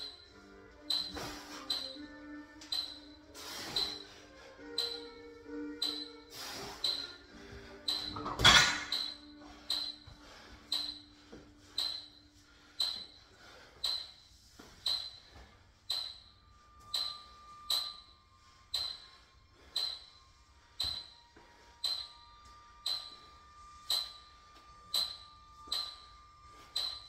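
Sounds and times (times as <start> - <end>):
background music: 0.0 - 27.0
steady ticking: 0.8 - 4.0, 4.6 - 7.2, 8.9 - 10.0, 10.7 - 11.1, 11.7 - 12.2, 12.8 - 14.2, 14.8 - 20.2, 21.8 - 22.2, 22.8 - 23.2, 24.9 - 26.1, 26.7 - 27.0.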